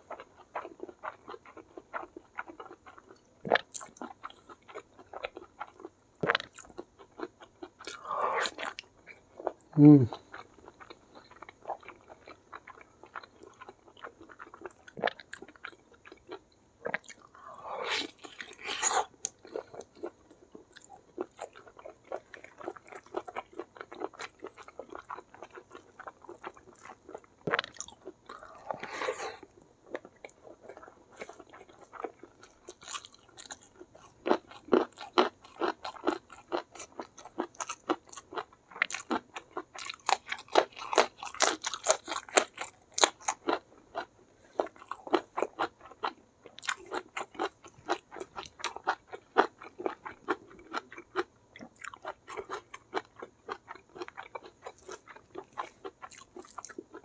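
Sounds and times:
small food crunches: 29.4 - 57.0.

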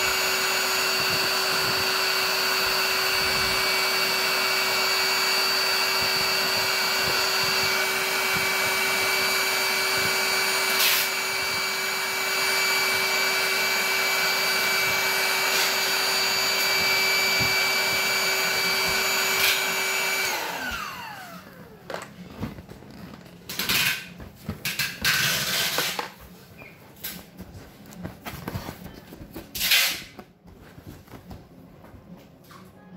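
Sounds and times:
electric air pump whining: 0.0 - 26.2.

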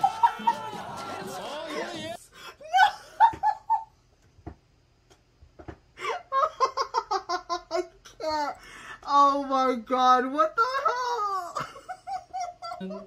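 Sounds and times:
person laughing: 0.0 - 3.9, 11.4 - 13.0.

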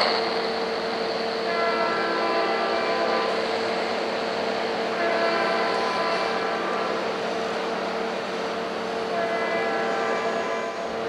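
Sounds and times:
steady noisy rumble: 0.0 - 5.0
diesel locomotive horn: 1.4 - 11.0.

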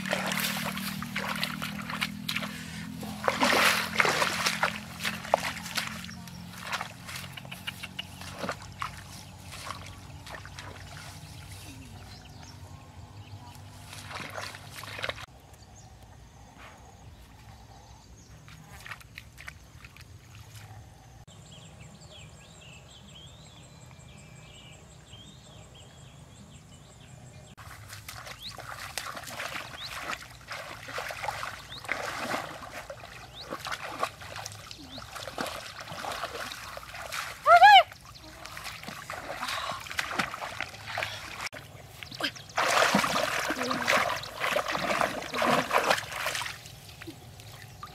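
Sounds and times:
dog splashing through shallow water: 0.0 - 12.4, 13.6 - 15.3, 27.6 - 47.9.

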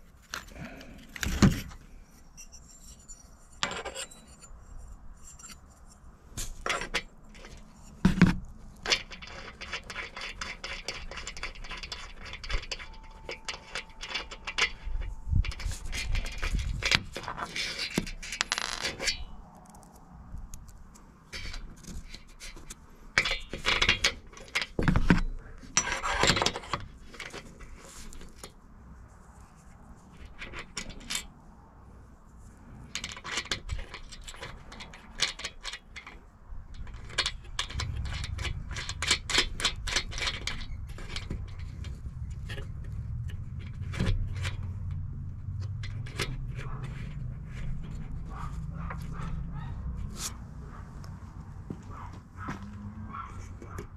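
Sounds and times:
metal parts clinking and scraping: 0.0 - 28.6, 29.4 - 31.4, 32.6 - 52.6.

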